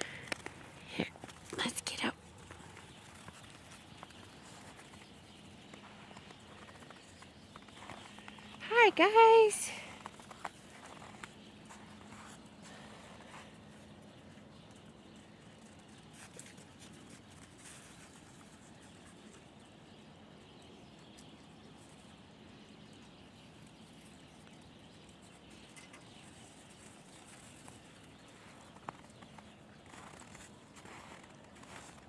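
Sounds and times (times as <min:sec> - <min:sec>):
footsteps crunching in snow: 0:02.4 - 0:08.6, 0:09.9 - 0:13.6, 0:28.2 - 0:32.0.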